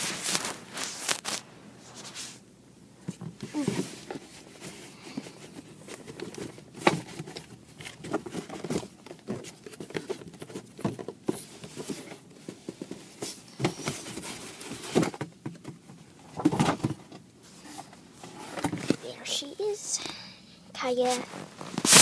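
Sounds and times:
cardboard box being handled: 0.0s - 2.4s, 3.1s - 15.3s.

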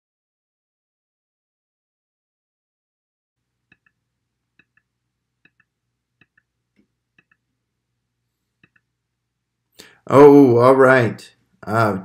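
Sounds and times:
faint computer mouse clicks: 8.6s - 8.9s.

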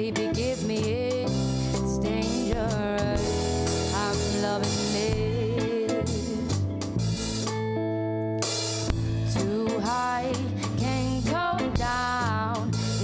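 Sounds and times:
woman singing: 0.0s - 6.7s, 9.3s - 13.0s
live pop band playing: 0.0s - 7.8s, 8.4s - 13.0s.

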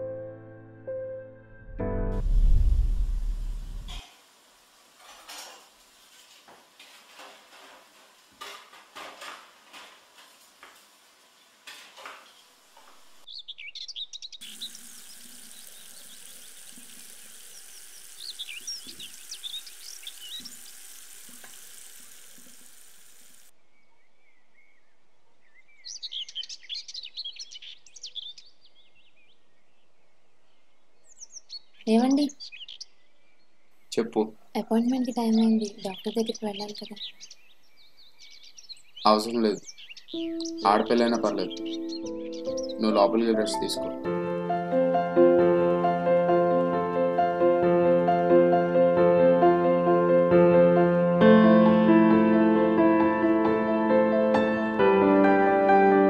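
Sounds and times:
birds chirping: 10.6s - 44.1s
tap water running into basin: 14.4s - 23.5s.

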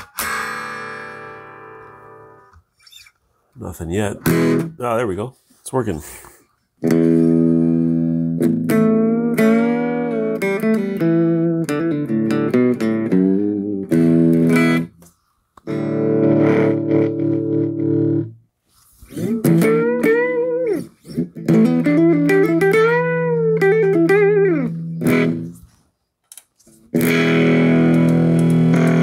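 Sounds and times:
distorted electric guitar: 0.0s - 2.6s, 4.2s - 4.8s, 6.8s - 15.0s, 15.6s - 18.4s, 19.1s - 25.7s, 26.7s - 29.0s.

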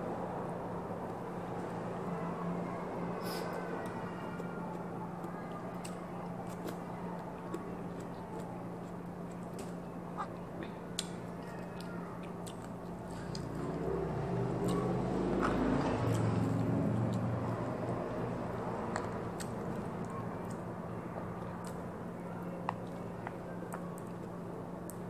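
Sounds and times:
person chewing: 11.8s - 13.7s, 14.6s - 17.3s.

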